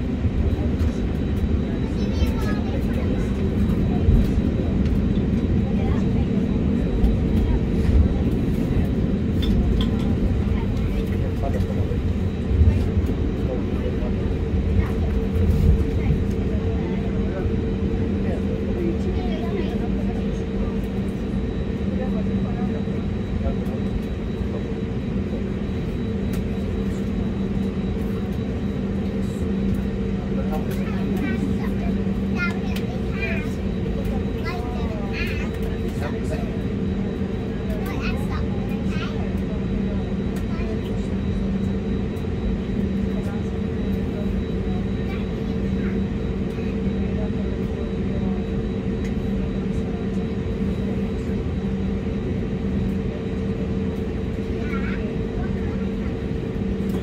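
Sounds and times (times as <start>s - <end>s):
airplane cabin drone: 0.0s - 57.0s.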